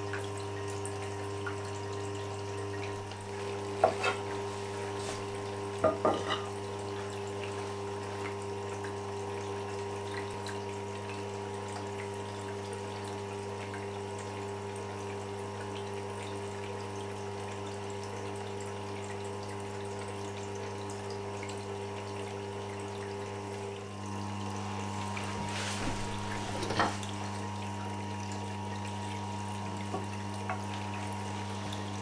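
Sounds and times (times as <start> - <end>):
grinding stone swishing in water: 3.7 - 6.5.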